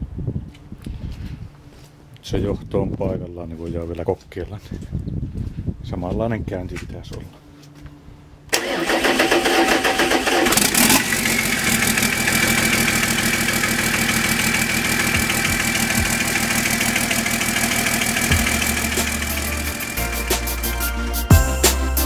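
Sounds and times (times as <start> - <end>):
diesel engine cranking and idling: 8.5 - 21.7.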